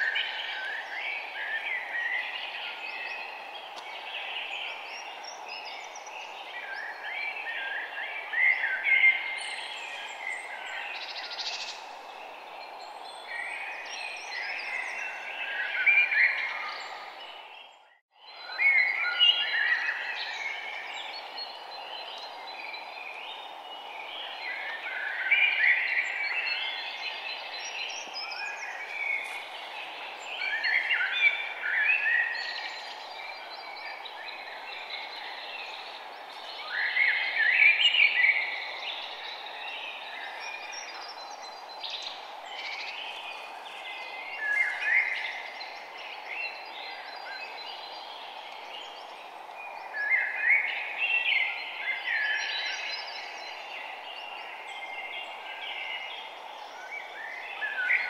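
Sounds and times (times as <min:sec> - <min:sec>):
songbirds chirping: 0:00.0 - 0:58.0
steady background hiss: 0:18.6 - 0:58.0.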